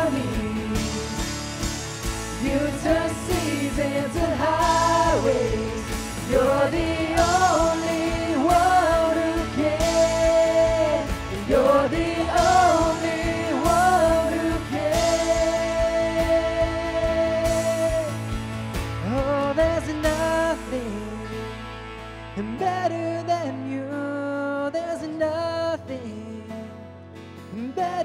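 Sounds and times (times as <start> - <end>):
man and woman singing: 0.0 - 18.2, 19.0 - 21.3
drums: 0.0 - 22.7
electric bass: 0.0 - 25.2.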